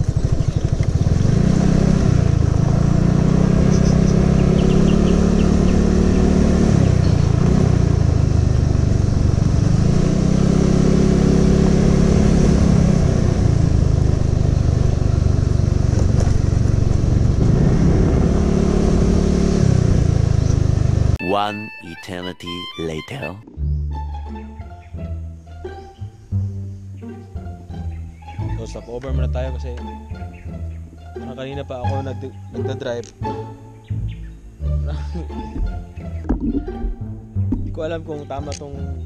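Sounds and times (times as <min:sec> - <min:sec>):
scooter engine revving: 0:00.0 - 0:21.2.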